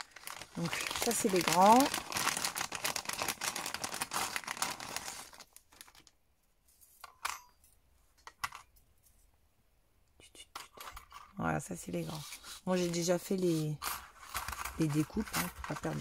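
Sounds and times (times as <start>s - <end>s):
plastic sleeve crinkling: 0.0s - 6.2s, 12.0s - 16.0s.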